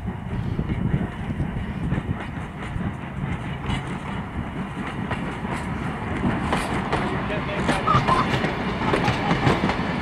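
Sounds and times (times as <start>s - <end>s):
steel wheels rumbling on rail: 0.0s - 10.0s.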